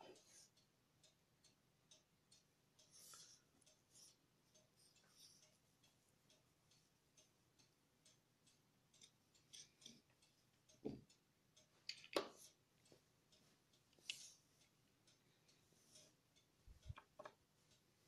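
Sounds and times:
soft knocks and clicks on plastic: 0:10.8 - 0:11.1, 0:16.9 - 0:17.4.

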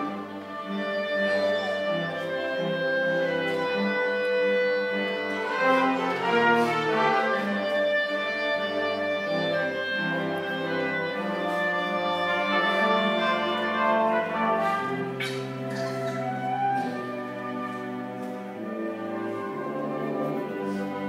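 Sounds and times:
orchestra playing sustained chords: 0:00.0 - 0:21.0.

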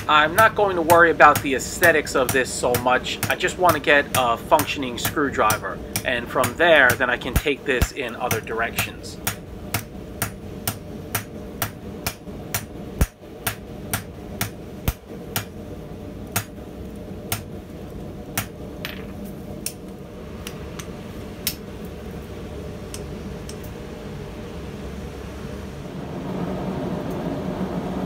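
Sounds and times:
hammer striking hot steel: 0:00.0 - 0:15.6, 0:16.3 - 0:16.6, 0:17.3 - 0:17.5, 0:18.3 - 0:21.6, 0:22.9 - 0:23.7
steady low hum: 0:00.0 - 0:28.0.

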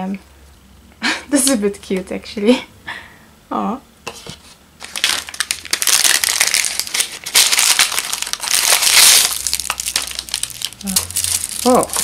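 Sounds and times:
plastic packet crackling: 0:04.8 - 0:12.0.

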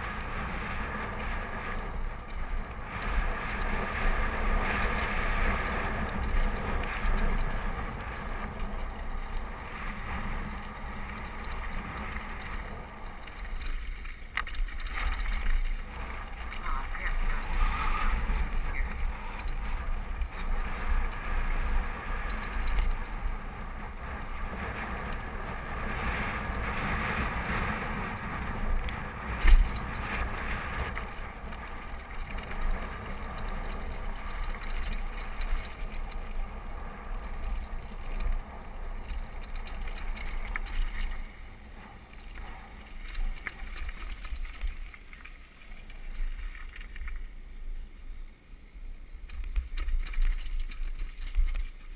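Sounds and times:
wind buffeting microphone: 0:00.0 - 0:47.3
bike tyres rumbling on gravel: 0:00.0 - 0:51.9.

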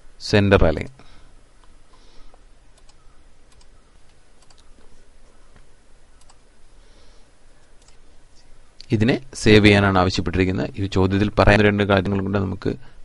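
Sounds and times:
steady low hum: 0:00.0 - 0:13.0
keyboard and mouse clicks: 0:02.7 - 0:04.9, 0:06.2 - 0:06.4, 0:07.6 - 0:08.0.

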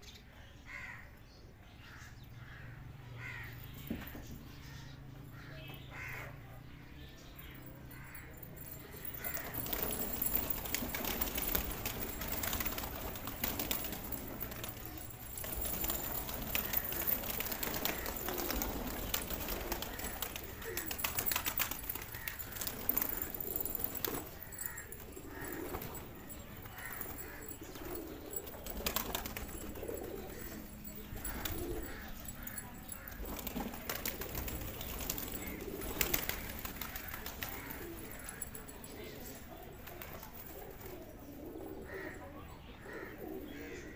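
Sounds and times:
pigeons cooing: 0:08.6 - 0:43.9
wings flapping: 0:09.2 - 0:38.7.

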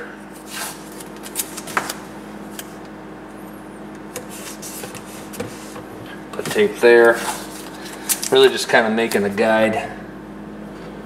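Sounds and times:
plastic grille shifting: 0:04.1 - 0:09.3.

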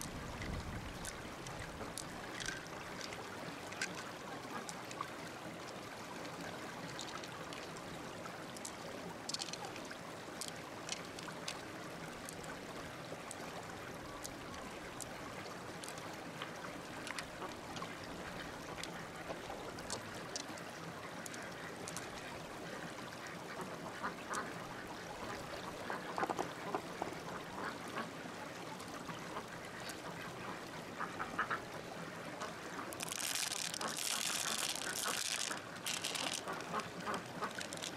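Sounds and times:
small clicks: 0:08.6 - 0:09.8, 0:10.4 - 0:11.6, 0:32.9 - 0:37.9
ducks quacking: 0:33.0 - 0:37.9.

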